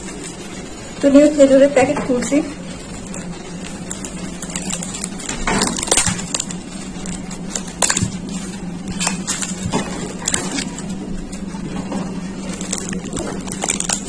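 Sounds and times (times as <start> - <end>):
plastic wrap crinkling: 2.1 - 14.0.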